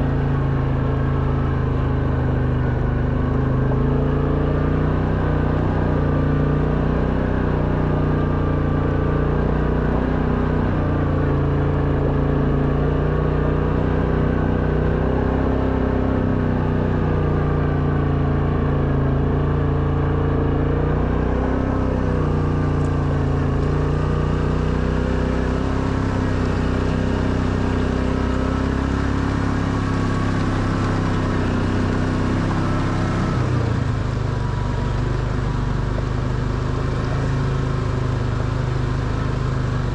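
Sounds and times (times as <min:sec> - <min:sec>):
quad bike engine under load: 0:18.0 - 0:39.9.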